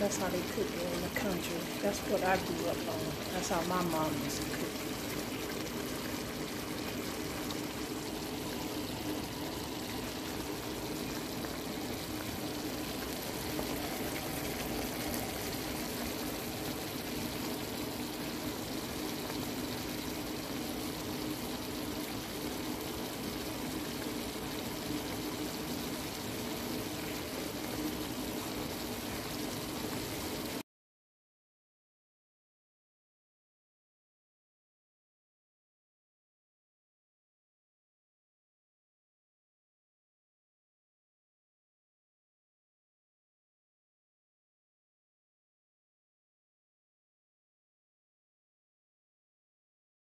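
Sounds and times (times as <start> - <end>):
gravy bubbling and sizzling: 0.0 - 30.6.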